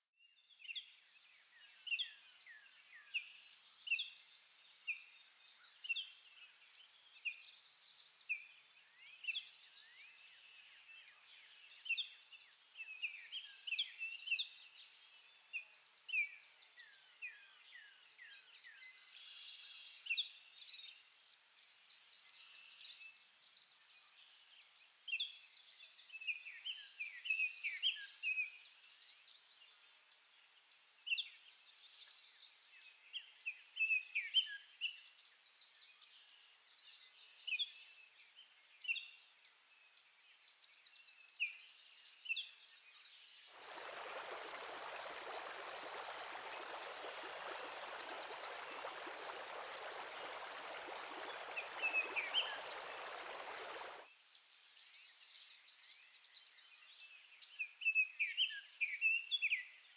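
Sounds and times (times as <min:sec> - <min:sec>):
birds chirping: 0:43.6 - 0:54.0
small waterfall rushing: 0:43.6 - 0:54.1.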